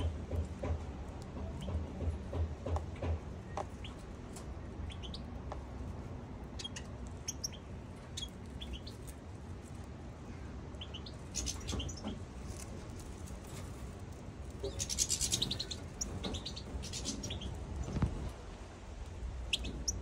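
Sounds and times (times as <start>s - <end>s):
low background rumble: 0.0s - 20.0s
finches chirping: 10.8s - 12.2s, 14.6s - 18.0s, 19.4s - 20.0s.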